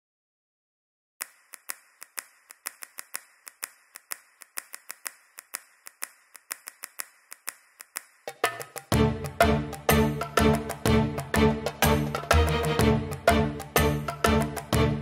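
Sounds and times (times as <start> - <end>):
sharp dry clicks: 1.2 - 9.0.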